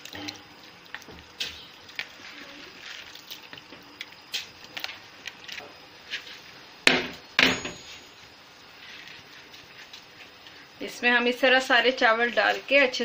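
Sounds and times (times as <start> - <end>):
rice pouring into water: 0.0 - 3.7.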